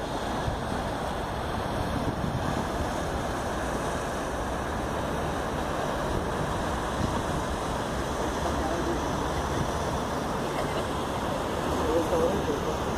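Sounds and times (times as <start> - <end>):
boat engine rumble: 0.0 - 12.9
water rushing: 0.0 - 12.9
wind buffeting microphone: 0.0 - 12.9.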